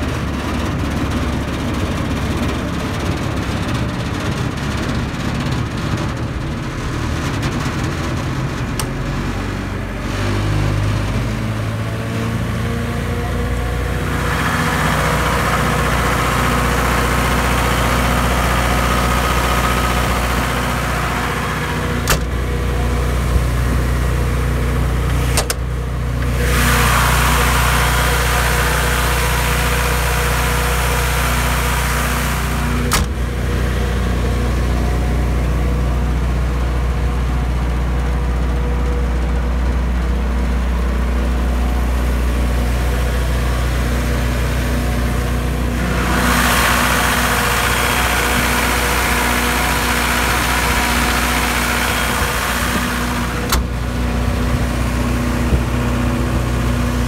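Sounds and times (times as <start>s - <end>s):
diesel generator running: 0.0s - 57.0s.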